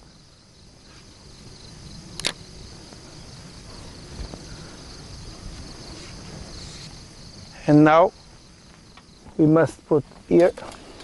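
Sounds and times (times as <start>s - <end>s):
insects chirping: 0.0s - 11.0s
low outdoor rumble: 0.0s - 11.0s.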